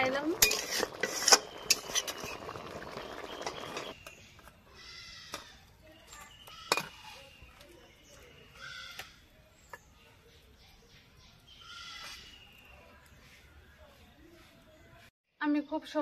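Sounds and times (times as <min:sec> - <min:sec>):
metal spatula scraping wok: 0:00.0 - 0:04.0
curry sizzling in wok: 0:00.0 - 0:04.4.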